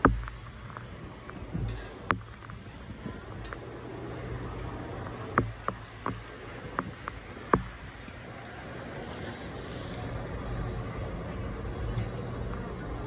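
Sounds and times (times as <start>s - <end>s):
sharp knocks: 0.0s - 0.9s, 1.5s - 3.6s, 5.3s - 7.9s
street traffic rumble: 0.0s - 13.0s.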